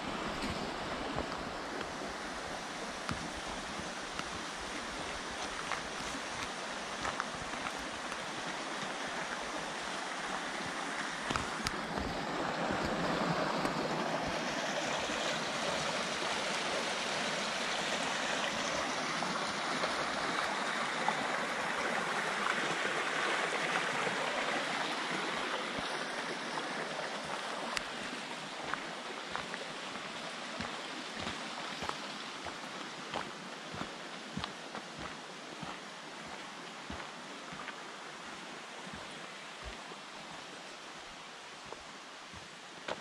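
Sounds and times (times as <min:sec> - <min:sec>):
stream rushing over stones: 0:00.0 - 0:43.0.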